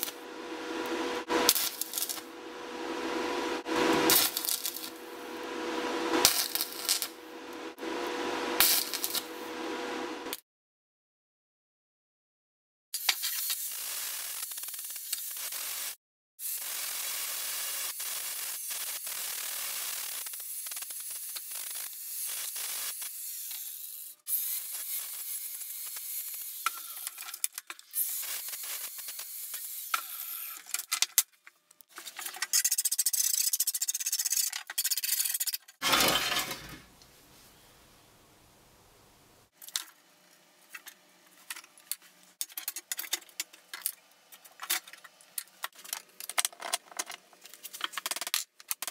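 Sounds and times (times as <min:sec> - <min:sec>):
angle grinder on sheet metal: 0:00.0 - 0:09.6.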